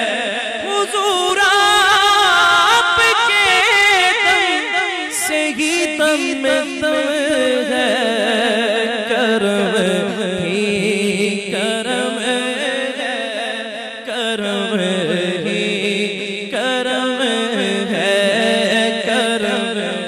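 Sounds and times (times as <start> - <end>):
man singing ornamented notes: 0.0 - 20.0.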